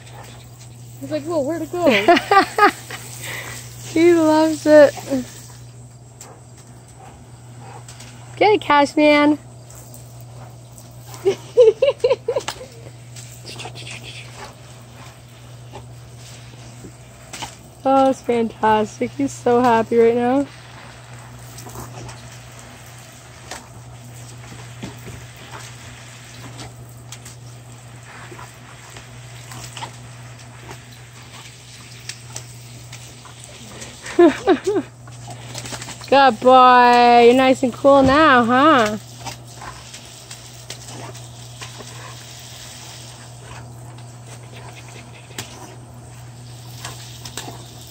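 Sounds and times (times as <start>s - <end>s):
garden hose spray hissing: 0.0s - 47.9s
low steady hum: 0.0s - 47.9s
hose spray hissing: 0.9s - 5.7s.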